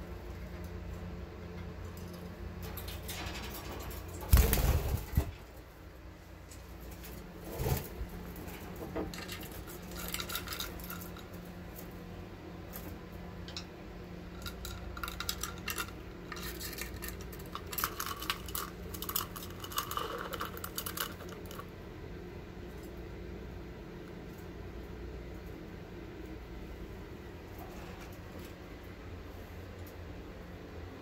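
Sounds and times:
faint steady hum: 0.0 - 31.0
bird clicks and scrapes: 6.5 - 11.4, 14.4 - 21.6.

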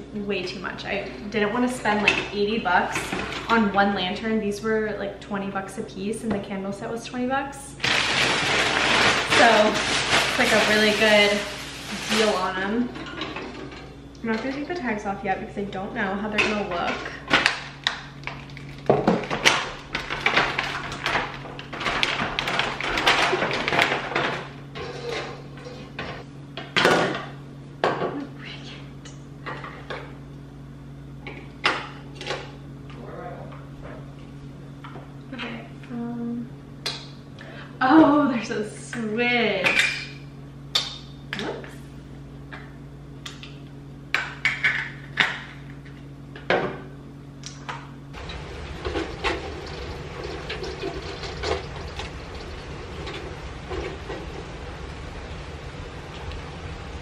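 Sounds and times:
steady low hum: 0.0 - 57.0
plastic packaging crinkling: 7.8 - 12.6.

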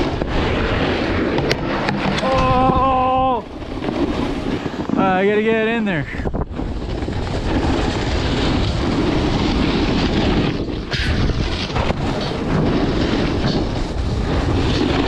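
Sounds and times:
snowboard scraping over snow: 0.0 - 15.0
wind rushing over microphone: 0.0 - 15.0.

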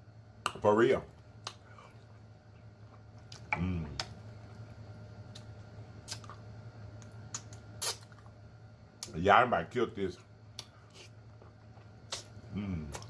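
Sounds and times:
person chewing with wet smacks: 1.3 - 6.4, 7.0 - 8.3, 10.5 - 13.0
person humming: 3.5 - 4.0, 12.5 - 13.0.

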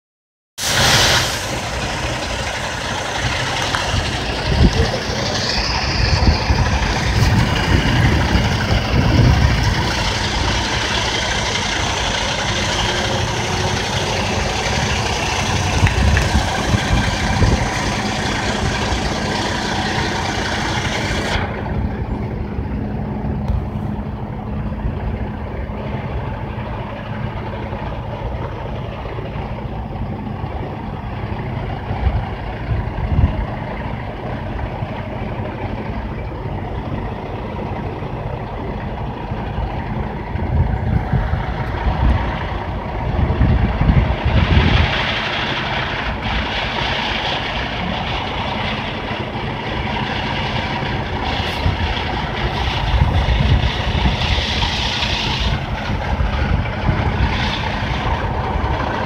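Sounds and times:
high hiss: 0.6 - 3.0
truck diesel engine idling: 0.6 - 59.0.

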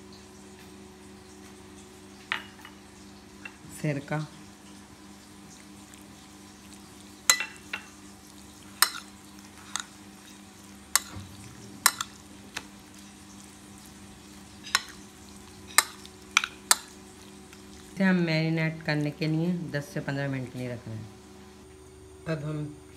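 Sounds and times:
steady low hum: 0.0 - 22.9
spoon clinking against glass bowl: 7.3 - 7.9, 11.8 - 12.2, 14.6 - 15.0.

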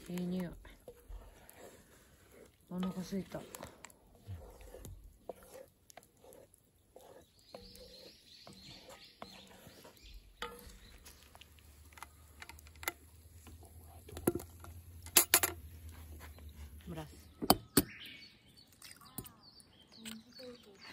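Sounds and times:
spatula stirring in pot: 0.0 - 15.0.

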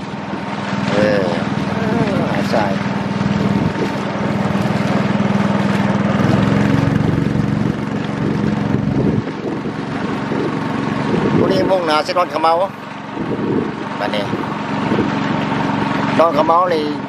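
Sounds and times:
boat engine running: 0.0 - 17.0.

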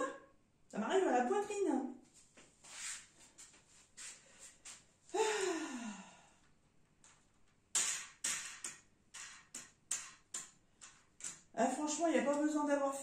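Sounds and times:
quick sharp clicks and scrapes: 7.7 - 11.5.

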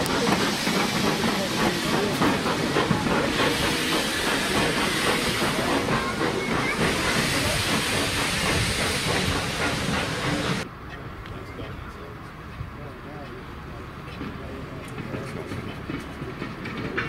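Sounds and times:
steam hissing: 0.0 - 10.6
steam locomotive exhaust chuffing: 0.0 - 10.7.

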